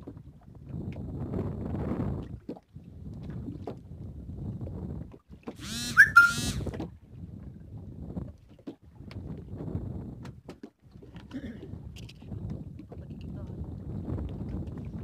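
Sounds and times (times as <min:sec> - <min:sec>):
wind and water rumble: 0:00.0 - 0:05.6, 0:06.6 - 0:15.0
shrill whistle-like squeal: 0:05.7 - 0:06.6.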